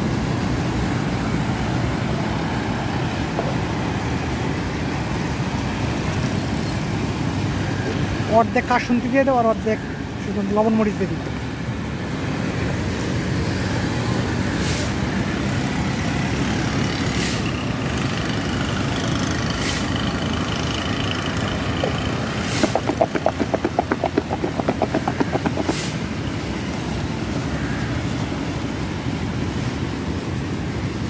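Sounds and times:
street traffic rumble: 0:00.0 - 0:31.0
plastic shaker cup rattling: 0:22.6 - 0:25.9.

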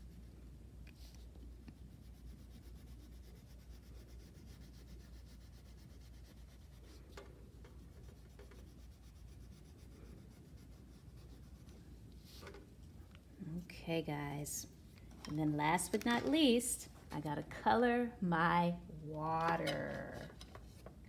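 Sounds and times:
low steady hum: 0:00.0 - 0:21.0
crayon rubbing on paper: 0:01.8 - 0:07.0, 0:07.8 - 0:12.0.

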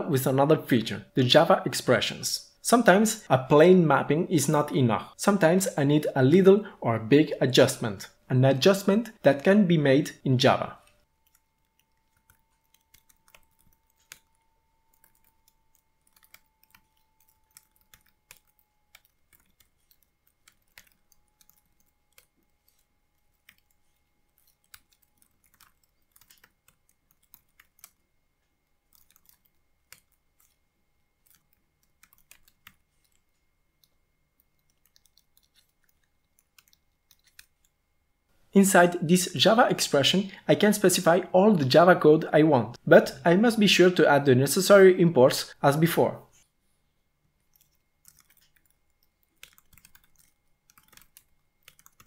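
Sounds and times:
typing on keyboard: 0:11.2 - 0:28.0, 0:28.8 - 0:30.6, 0:31.2 - 0:37.7, 0:47.5 - 0:52.0.

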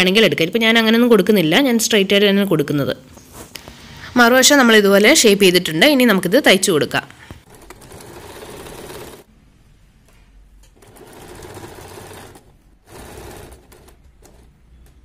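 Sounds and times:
sewing machine stitching: 0:07.4 - 0:09.3, 0:10.8 - 0:15.0.

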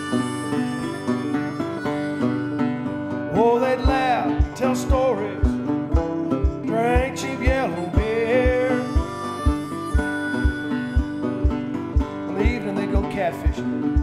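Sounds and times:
acoustic guitar: 0:00.0 - 0:14.0
country song melody: 0:00.0 - 0:14.0
kick drum beat: 0:03.9 - 0:14.0.

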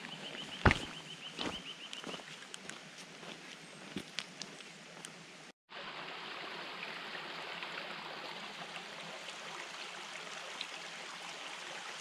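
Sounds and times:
stream running over stones: 0:00.0 - 0:03.0, 0:05.7 - 0:12.0.

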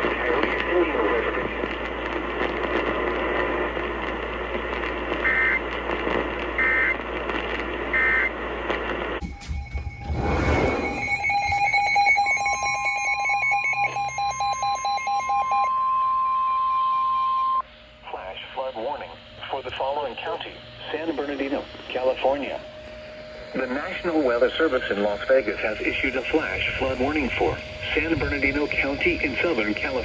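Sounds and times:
radio static: 0:00.0 - 0:09.3, 0:10.7 - 0:15.7, 0:17.5 - 0:30.0
steady warning alarm tone: 0:05.0 - 0:07.0, 0:07.8 - 0:08.4, 0:09.2 - 0:30.0
rapid pulsing alert beep: 0:09.2 - 0:15.7
short high beeps: 0:09.2 - 0:17.6.

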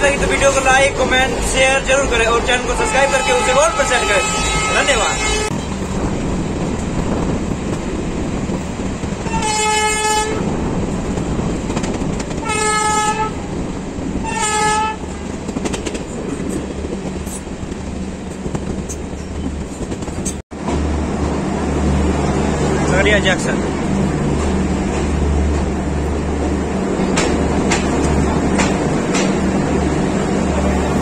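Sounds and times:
moving train running noise: 0:00.0 - 0:31.0
train horn blasts: 0:02.6 - 0:05.6, 0:09.2 - 0:10.5, 0:12.4 - 0:13.4, 0:14.2 - 0:15.2.

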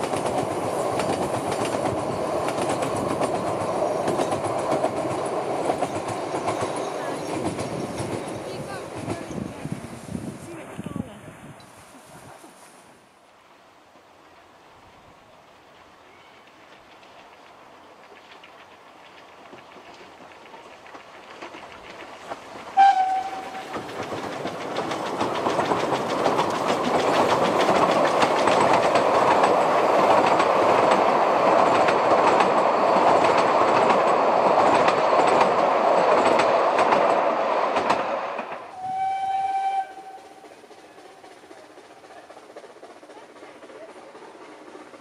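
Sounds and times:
train wheels clattering over rail joints: 0:00.0 - 0:09.8, 0:16.5 - 0:38.8, 0:39.7 - 0:45.0
steam whistle blasts: 0:22.8 - 0:23.7, 0:38.7 - 0:40.5.

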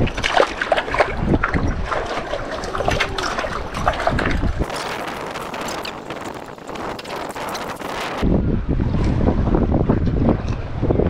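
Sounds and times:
small splashes: 0:00.0 - 0:07.9
wind buffeting microphone: 0:00.0 - 0:11.0.

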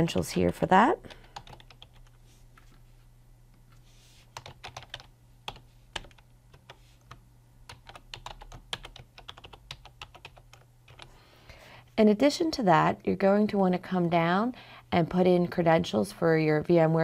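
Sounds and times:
computer keyboard typing: 0:00.0 - 0:02.2, 0:04.4 - 0:11.1
faint steady low hum: 0:00.0 - 0:17.0.

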